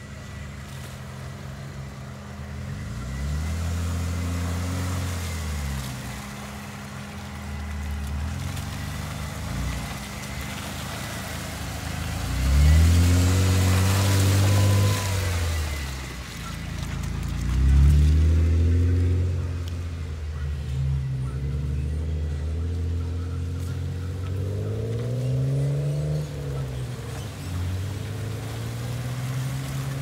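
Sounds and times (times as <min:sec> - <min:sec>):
vehicle engine revving: 0:00.0 - 0:30.0.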